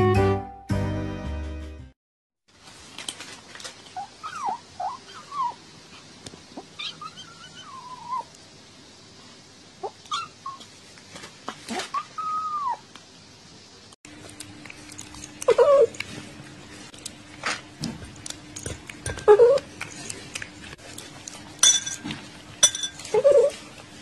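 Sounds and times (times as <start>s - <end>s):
kitten chewing kibble: 14.1s - 22.6s.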